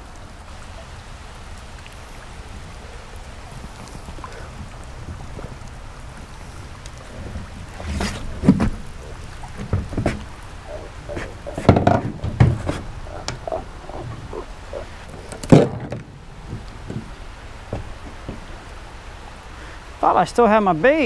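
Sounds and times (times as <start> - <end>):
fish thumping on deck: 9.6 - 13.5.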